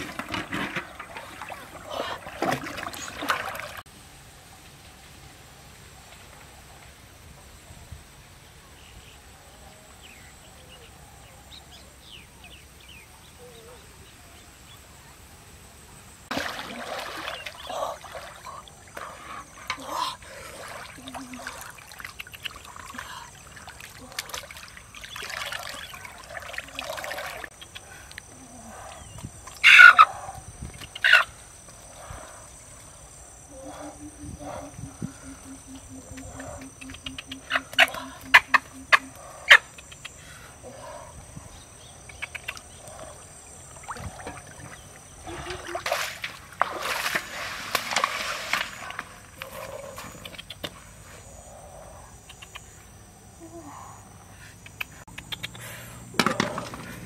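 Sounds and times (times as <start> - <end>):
water splashing from wading: 0.0 - 3.9, 16.3 - 27.5, 43.5 - 49.3
low pulsing call: 33.5 - 39.8.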